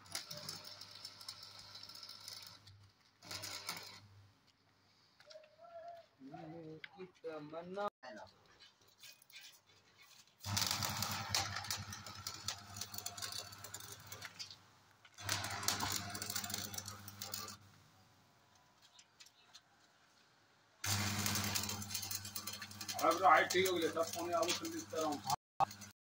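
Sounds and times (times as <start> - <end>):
power tool humming and crackling: 0.0 - 4.0, 10.4 - 17.7, 20.8 - 25.9.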